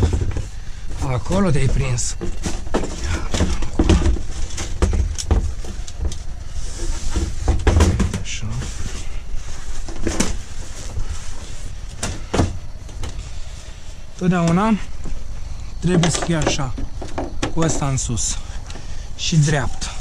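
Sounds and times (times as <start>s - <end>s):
thumps against boxes: 0.0s - 0.6s, 1.6s - 6.2s, 7.1s - 8.4s, 12.0s - 13.2s
metal hooks and buckles clattering: 15.8s - 18.1s.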